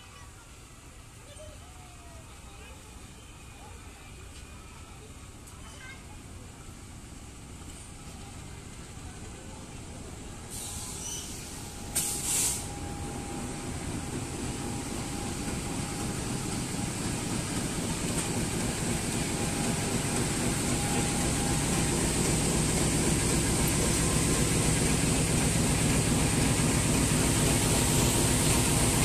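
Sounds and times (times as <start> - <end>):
locomotive engine rumble: 0.0 - 29.0
short sharp hiss: 10.5 - 12.8.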